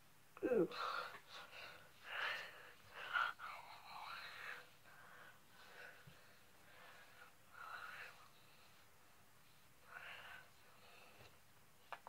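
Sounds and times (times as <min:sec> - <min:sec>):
person whispering breathily: 0:00.4 - 0:05.0.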